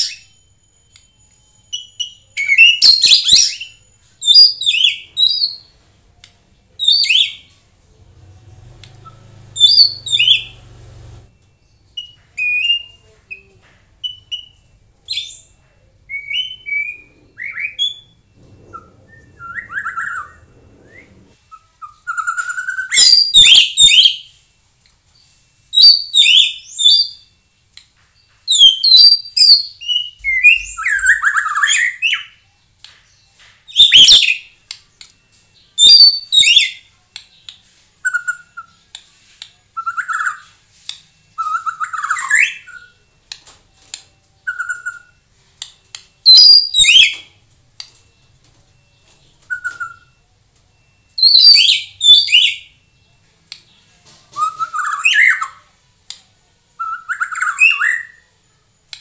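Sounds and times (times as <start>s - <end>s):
bird singing whistles and chatter: 11.7s - 24.4s, 33.0s - 39.0s, 44.0s - 45.2s, 45.9s - 47.4s, 48.8s - 52.8s, 53.6s - 55.7s, 56.8s - 58.3s
short level whistled notes: 16.1s - 23.2s.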